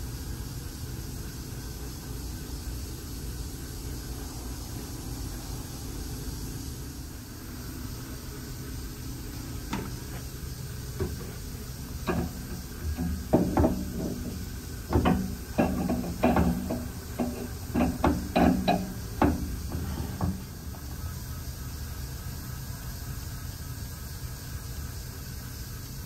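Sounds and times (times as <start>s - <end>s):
steady low hum: 0.0s - 26.0s
metal clunks and clinks: 12.0s - 20.7s.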